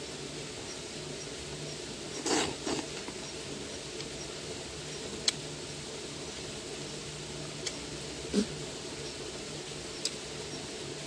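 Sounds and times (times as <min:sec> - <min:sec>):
wet slurping mouth noises: 0:02.2 - 0:02.9
soft high ticks: 0:04.0 - 0:04.2, 0:04.9 - 0:05.4, 0:07.6 - 0:07.8, 0:10.0 - 0:10.2.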